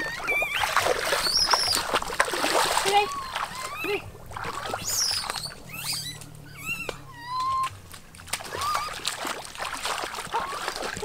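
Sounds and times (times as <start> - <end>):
high chirping animal calls: 0.0 - 1.9, 3.0 - 4.1, 4.8 - 7.8
feet splashing in shallow water: 0.0 - 11.0.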